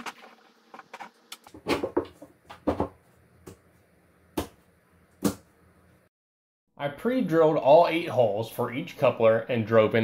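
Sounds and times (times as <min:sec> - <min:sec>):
table legs knocking on plastic: 0:01.5 - 0:03.0.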